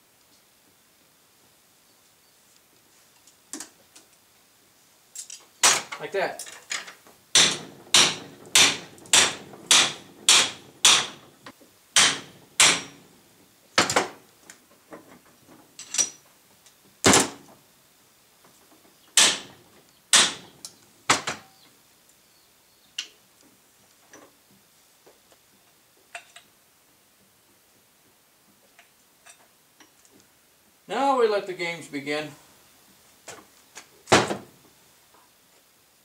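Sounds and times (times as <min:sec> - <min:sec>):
hammer striking steel: 0:07.4 - 0:11.3, 0:12.0 - 0:13.1, 0:19.2 - 0:20.5.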